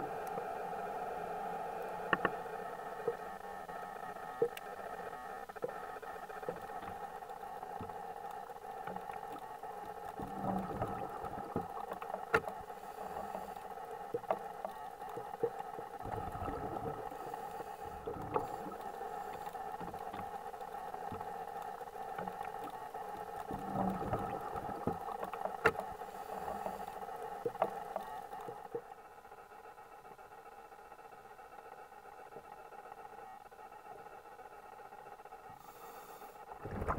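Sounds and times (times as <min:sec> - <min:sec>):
underwater hiss: 0:12.8 - 0:13.6, 0:16.1 - 0:19.5, 0:35.5 - 0:36.9.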